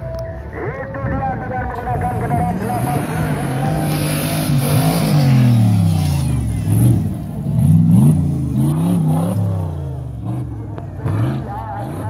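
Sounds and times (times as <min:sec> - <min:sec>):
buggy engine revving hard: 0:02.5 - 0:12.0.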